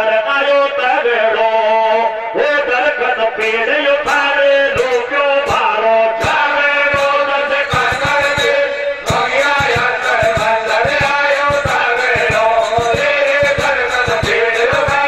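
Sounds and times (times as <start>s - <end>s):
men singing folk chant: 0.0s - 15.0s
steady drum beat: 3.5s - 15.0s.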